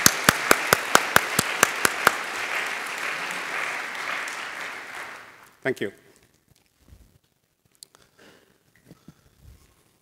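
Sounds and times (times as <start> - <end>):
close loud hand clapping: 0.0 - 5.5
audience applauding: 0.0 - 5.6.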